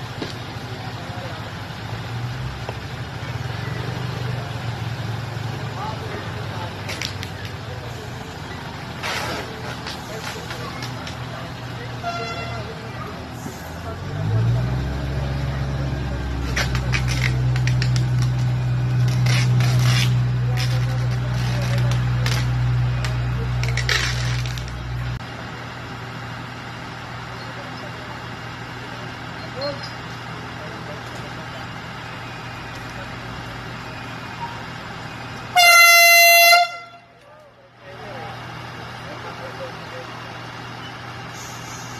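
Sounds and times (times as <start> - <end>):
train engines droning: 0.0 - 41.9
short scrapes and clicks: 9.0 - 11.2, 16.4 - 24.8
train horn blast: 12.0 - 12.7, 35.5 - 37.1.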